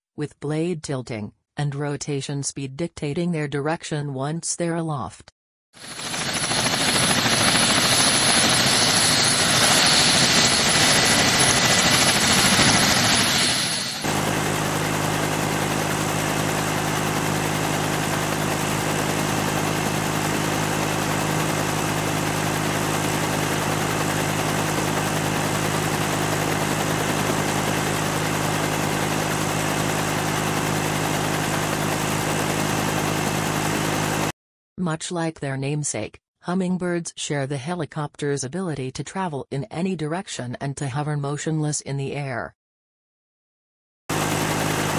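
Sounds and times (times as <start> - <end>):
helicopter rotors and engine: 5.8 - 34.3, 44.1 - 44.9.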